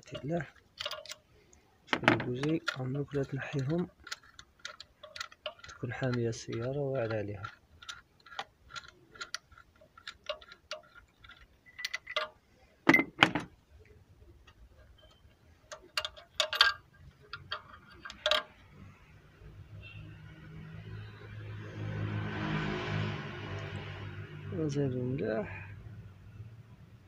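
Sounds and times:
socket wrench clicking: 0:00.0 - 0:01.3, 0:02.0 - 0:12.4, 0:15.7 - 0:18.6.

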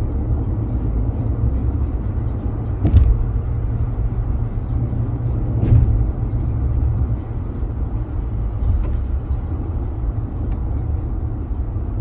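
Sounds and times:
car road noise rumble: 0:00.0 - 0:12.0
brief thumps: 0:02.8 - 0:03.4, 0:05.5 - 0:06.2.

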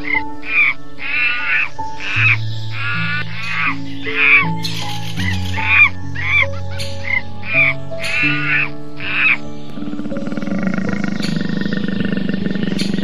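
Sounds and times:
monkey calls: 0:00.0 - 0:13.0
soft background music: 0:00.0 - 0:13.0
big cat pulsing rasp: 0:09.8 - 0:13.0.

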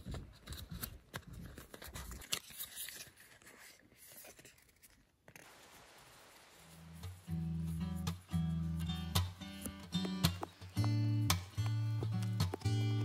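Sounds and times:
light clicks of paper: 0:00.0 - 0:05.5
paper and card scraping: 0:00.0 - 0:13.0
paper crinkling: 0:00.0 - 0:13.0.

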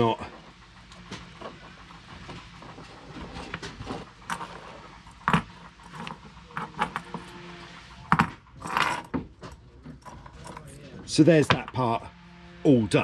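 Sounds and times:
rope rubbing: 0:01.6 - 0:09.2.

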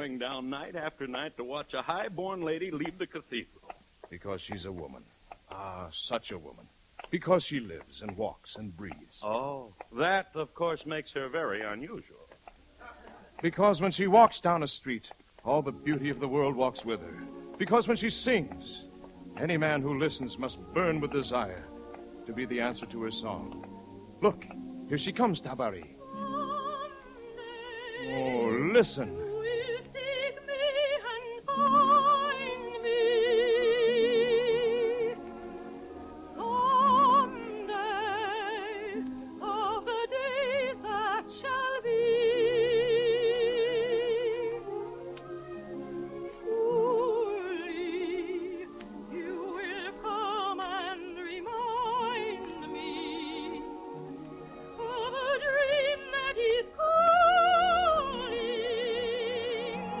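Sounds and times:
musical accompaniment: 0:15.4 - 1:00.0
soprano singing operatically: 0:15.4 - 1:00.0.

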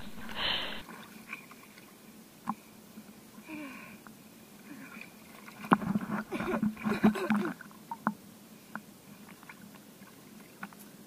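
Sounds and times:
sea water sloshing and gurgling: 0:04.5 - 0:11.0
water splashing and bubbling: 0:04.6 - 0:08.2.

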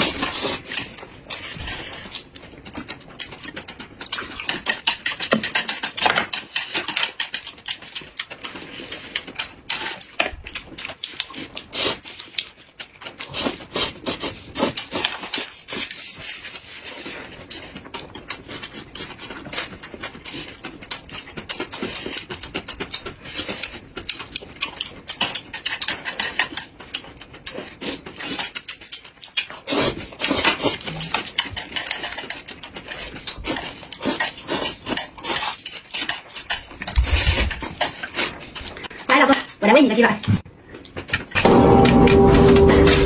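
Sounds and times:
wet chewing and mouth clicks: 0:00.0 - 0:41.4
noodle slurping: 0:33.0 - 0:36.1.

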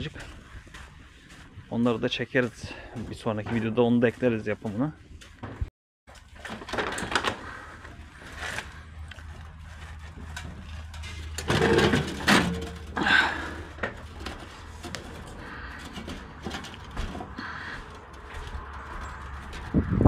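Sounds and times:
objects knocking and clattering: 0:05.4 - 0:07.5, 0:10.2 - 0:19.8.

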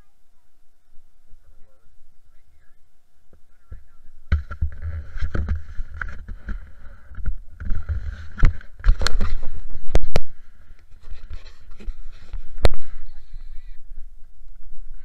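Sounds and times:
camera handling noise rumbling: 0:04.3 - 0:13.0.

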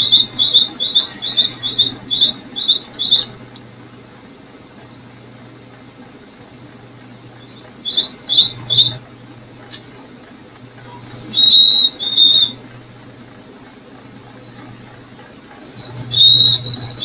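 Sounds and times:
small bird chirping: 0:00.0 - 0:03.4, 0:07.4 - 0:09.0, 0:10.8 - 0:12.6, 0:15.6 - 0:17.0.

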